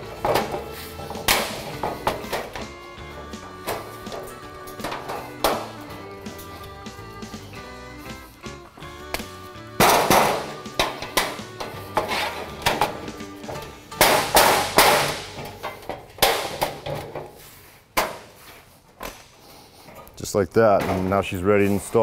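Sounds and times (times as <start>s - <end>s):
metal panel clanking: 0.0s - 6.0s, 9.7s - 17.4s
background music: 0.0s - 17.6s.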